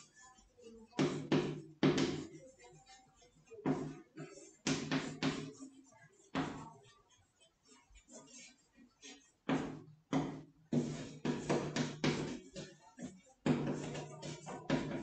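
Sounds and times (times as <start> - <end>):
chalk tapping and scraping on blackboard: 0.8 - 15.0.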